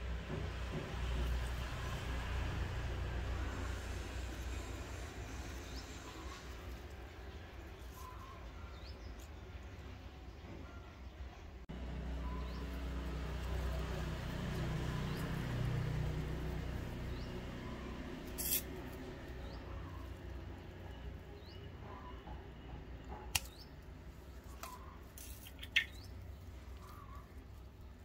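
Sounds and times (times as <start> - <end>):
plant leaves clicking and crackling: 24.4 - 28.0.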